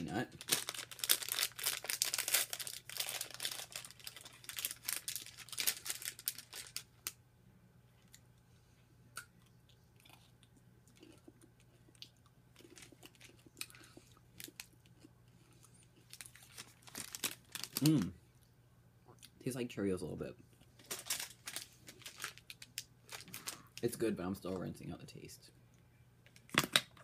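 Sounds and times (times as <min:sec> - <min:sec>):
candy wrapper crinkling: 0:00.0 - 0:07.2, 0:12.6 - 0:13.8, 0:16.0 - 0:18.1, 0:20.8 - 0:24.0
crunching and chewing: 0:00.3 - 0:07.2, 0:09.1 - 0:18.1, 0:20.5 - 0:23.9.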